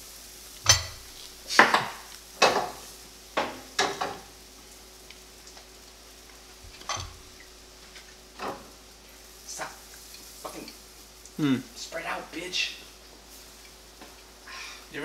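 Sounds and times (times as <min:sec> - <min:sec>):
faint frying sizzle: 0:00.0 - 0:15.0
utensils clattering against pans: 0:00.7 - 0:02.8, 0:03.4 - 0:04.2, 0:06.7 - 0:07.3.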